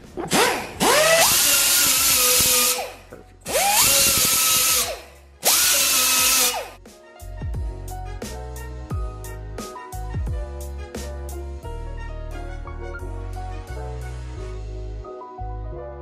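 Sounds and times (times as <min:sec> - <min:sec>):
background music: 0:00.0 - 0:16.0
air sander whining: 0:00.3 - 0:06.8.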